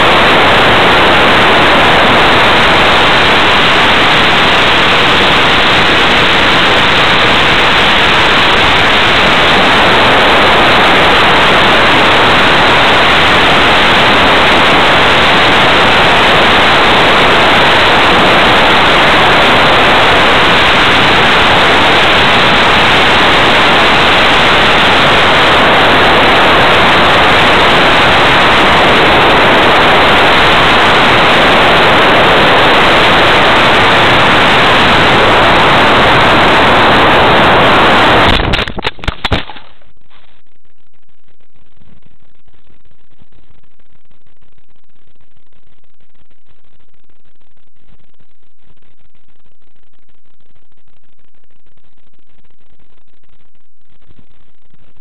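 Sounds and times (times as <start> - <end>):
rushing airflow over microphone: 0.0 - 40.2.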